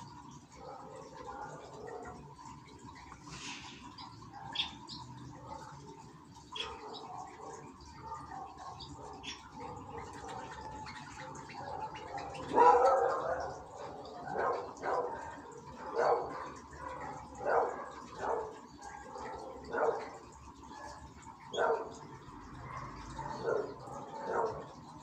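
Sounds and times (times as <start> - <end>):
dog barking: 0.5 - 2.2, 11.7 - 20.3, 21.5 - 22.0, 22.6 - 24.8.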